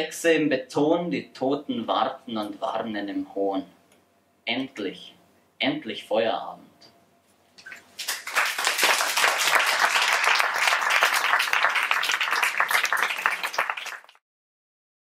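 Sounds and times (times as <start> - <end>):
audience applauding: 8.0 - 14.2.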